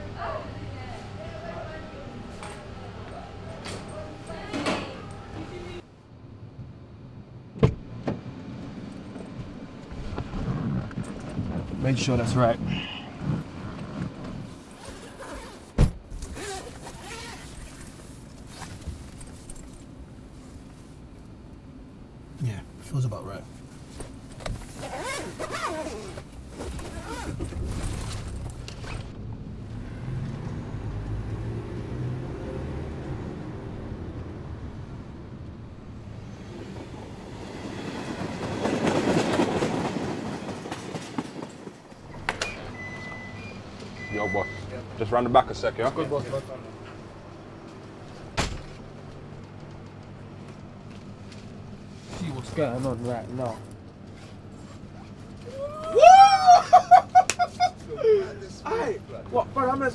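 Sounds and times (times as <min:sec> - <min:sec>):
train rumbling over bridge: 0:29.2 - 0:42.8
wheels clacking over rail joints: 0:36.7 - 0:42.7
steady high beep: 0:42.7 - 0:44.8
sharp thump: 0:48.4 - 0:48.8.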